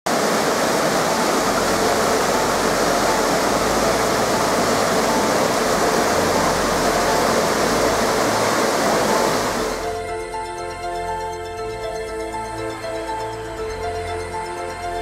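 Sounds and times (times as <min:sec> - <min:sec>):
river water rushing over rocks: 0:00.1 - 0:09.9.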